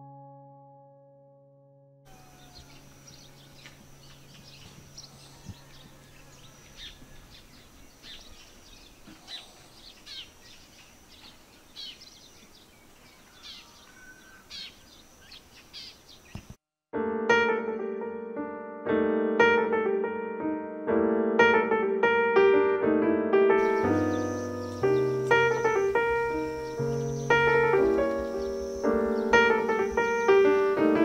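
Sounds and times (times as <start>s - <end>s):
birds chirping: 2.1s - 16.6s, 23.6s - 31.0s
faint outdoor hiss: 2.1s - 16.6s, 23.6s - 31.0s.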